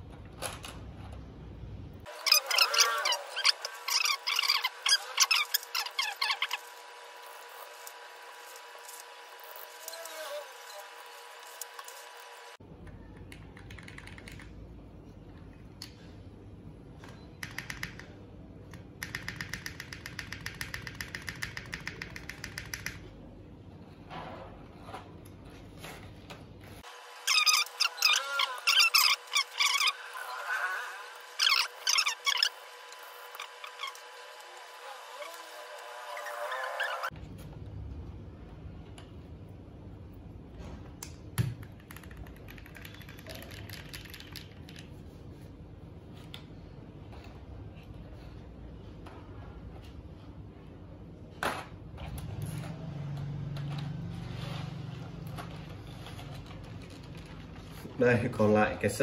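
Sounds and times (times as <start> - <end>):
mechanical keyboard keys clacking: 13.2 - 14.5, 17.4 - 23.1, 41.6 - 44.9.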